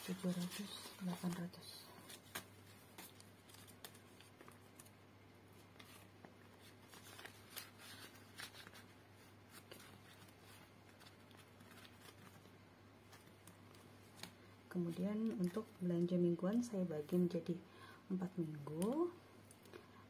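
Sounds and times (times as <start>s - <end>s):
paper banknotes rustling: 0.0s - 15.6s.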